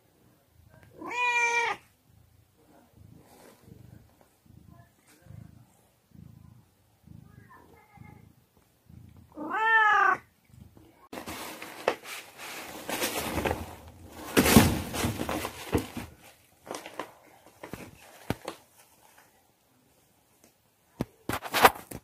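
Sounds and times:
cat meowing: 0.9 - 1.8, 9.3 - 10.3
rustling in paper bedding: 11.1 - 19.3.

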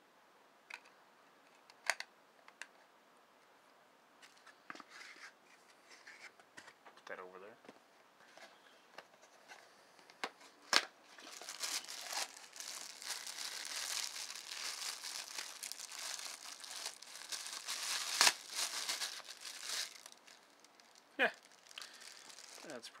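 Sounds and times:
sharp plastic crackles: 10.2 - 23.0
plastic bag crinkling: 11.2 - 23.0.

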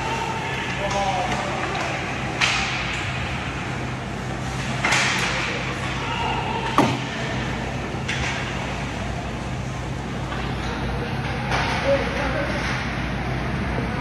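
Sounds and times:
puck hitting the boards: 6.6 - 7.3.

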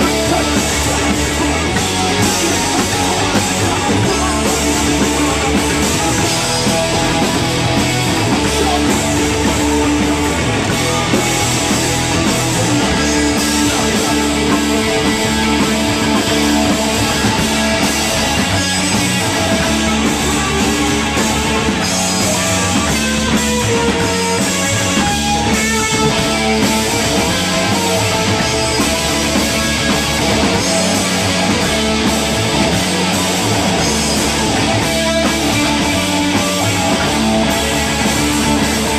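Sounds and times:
bass guitar: 0.0 - 38.9
drum kit: 0.0 - 38.9
electric guitar: 0.0 - 38.9.

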